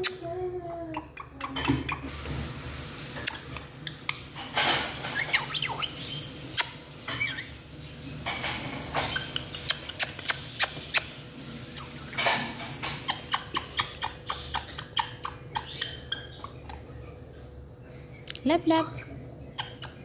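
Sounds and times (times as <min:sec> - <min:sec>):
parrot soft chattering: 0:00.0 - 0:02.2, 0:03.2 - 0:07.6, 0:08.5 - 0:17.0, 0:18.7 - 0:20.0
parrot clicking: 0:09.3 - 0:11.1.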